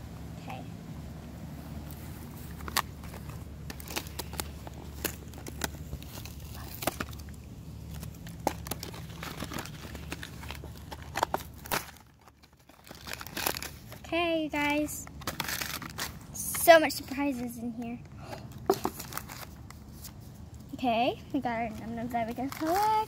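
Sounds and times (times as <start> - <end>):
steady low hum: 0.0 - 23.0
packaging crinkling and tearing: 1.8 - 16.6, 18.5 - 20.6, 21.8 - 23.0.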